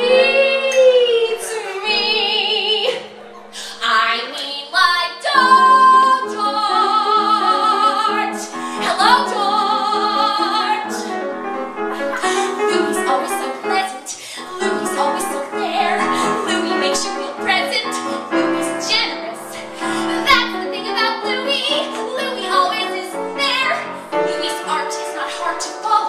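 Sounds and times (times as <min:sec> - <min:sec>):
woman singing operatically: 0:00.0 - 0:11.2, 0:12.0 - 0:26.0
grand piano chords: 0:00.0 - 0:26.0.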